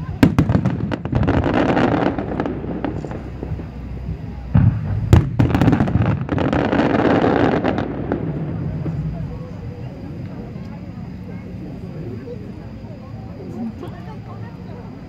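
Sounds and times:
fireworks bursting with sharp bangs: 0.0 - 11.2
fireworks crackling: 0.0 - 13.9.

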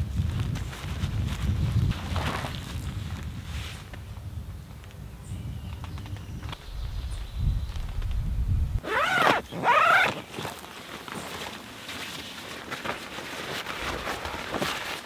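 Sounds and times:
tent fabric rustling: 0.0 - 4.1, 8.8 - 15.0
wind buffeting microphone: 0.0 - 8.9.

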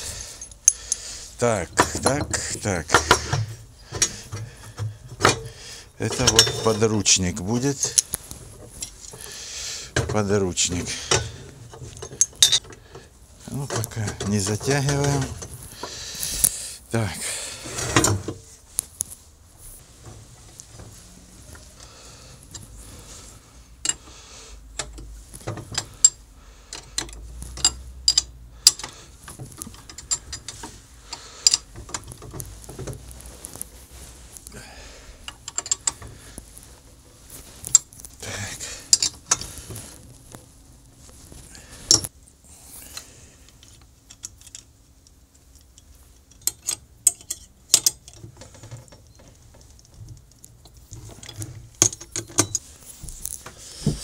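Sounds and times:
metal tools clinking and tapping: 0.0 - 9.3, 10.8 - 13.0, 13.6 - 15.9, 23.8 - 24.1, 24.8 - 32.4, 35.2 - 36.2, 38.9 - 39.6, 41.8 - 42.1, 45.6 - 49.3, 50.6 - 53.4.

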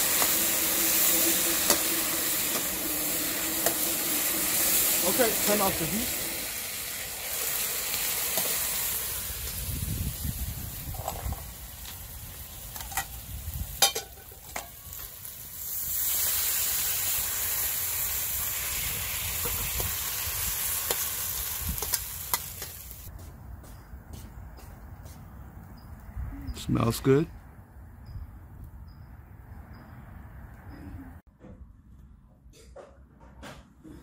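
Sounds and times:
chicken sizzling in a wok: 0.0 - 23.1
metal spatula clinking on wok: 13.8 - 14.8.

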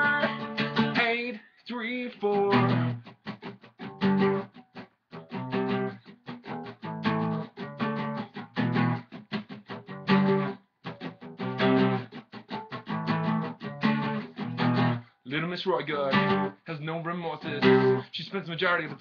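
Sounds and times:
guitar strumming chords: 0.0 - 16.6, 17.2 - 19.0.

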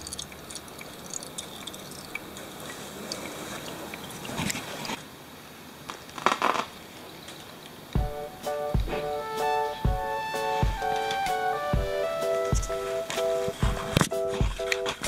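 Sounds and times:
small clicks and scrapes: 2.7 - 5.0
rustling scrapes: 4.2 - 5.0.

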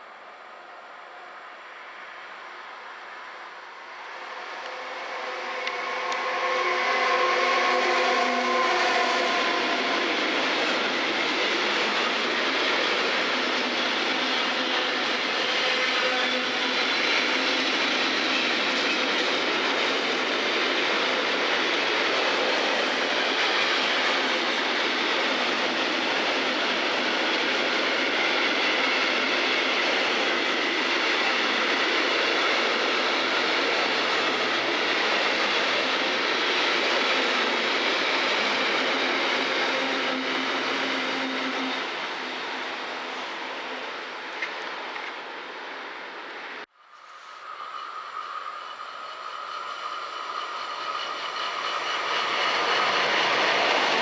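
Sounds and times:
freight train rolling: 0.0 - 54.0
locomotive steady tones: 47.0 - 54.0.

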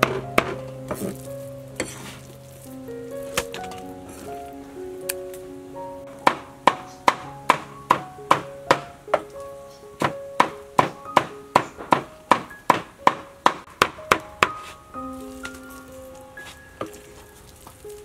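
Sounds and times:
gentle background music: 0.0 - 18.0.

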